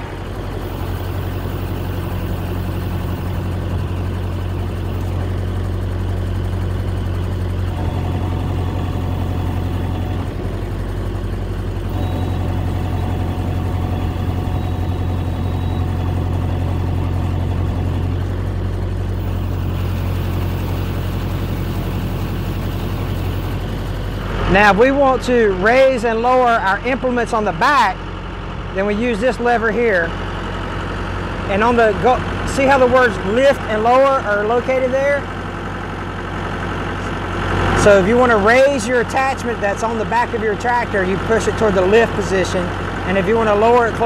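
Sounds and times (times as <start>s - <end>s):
faint hydraulic whine: 0.0s - 24.4s
tractor diesel engine running: 0.0s - 44.0s.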